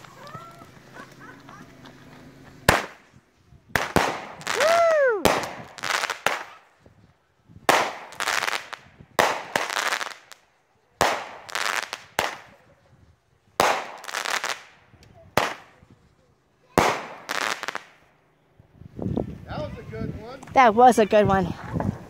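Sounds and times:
fireworks bangs and crackle: 0.0 - 18.1
firework whistle: 3.8 - 6.6.

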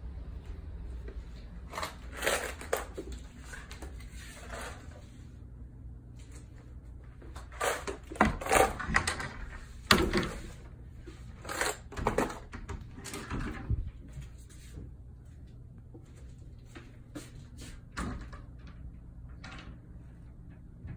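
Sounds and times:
closet doors knocking and rattling: 8.2 - 10.6, 12.0 - 14.0.

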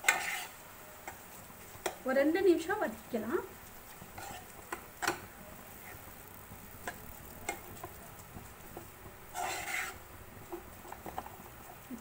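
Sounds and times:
metal spoon scraping a pan: 0.0 - 2.0, 3.8 - 5.3, 8.6 - 11.5
faint sizzle: 0.0 - 12.0.

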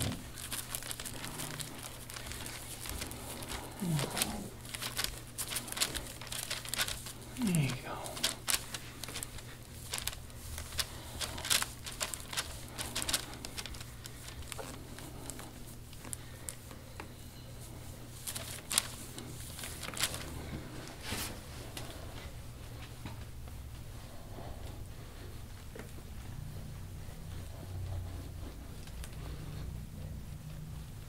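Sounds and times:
clicks and crackles of massage: 0.0 - 23.6, 24.6 - 31.0
low steady hum: 0.0 - 31.0.

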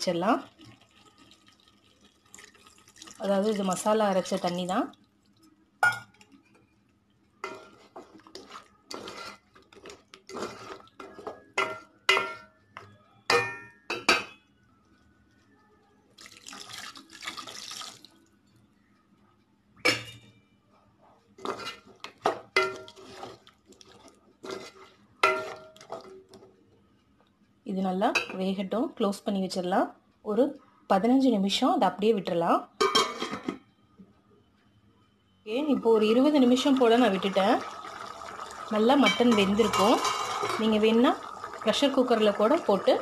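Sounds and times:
liquid rushing in pot: 7.5 - 11.3, 36.4 - 43.0
metal ladle clinking against pot: 24.5 - 26.1, 39.0 - 40.6.

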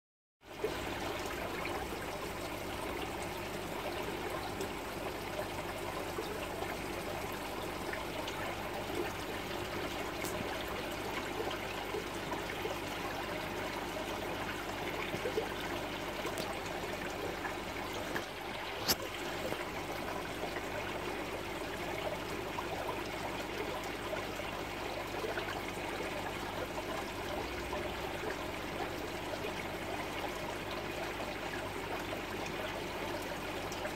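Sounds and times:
aquarium water trickling: 0.4 - 33.9.

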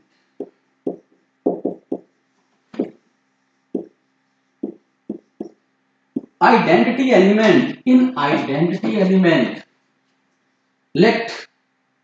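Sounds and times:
marker writing on whiteboard: 0.9 - 2.0, 4.6 - 5.5, 6.2 - 6.4.

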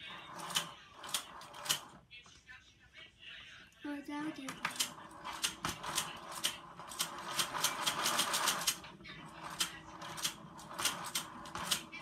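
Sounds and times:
rapid plastic clicking: 0.1 - 2.0, 4.4 - 12.0.

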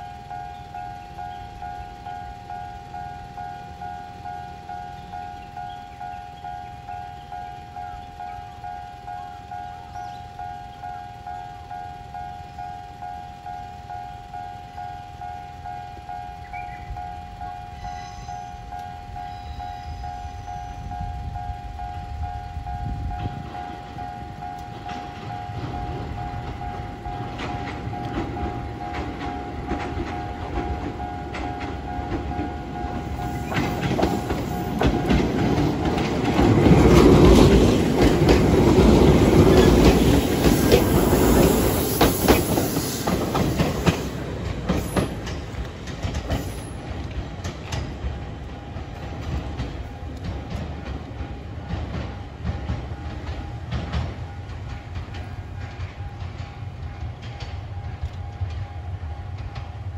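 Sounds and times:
level crossing warning bell: 0.0 - 59.9
train wheels clacking over rail joints: 21.4 - 59.8.

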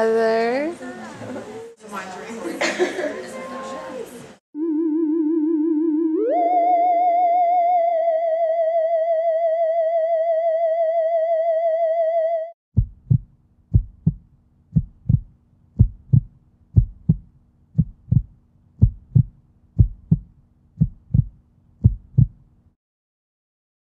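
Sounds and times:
heartbeat thumps: 12.8 - 22.4.

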